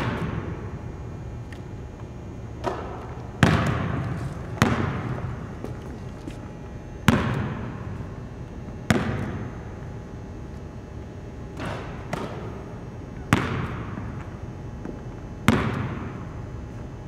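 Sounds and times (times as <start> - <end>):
basketball bouncing on hardwood floor: 2.6 - 5.8, 7.1 - 7.9, 8.9 - 9.8, 13.2 - 16.2.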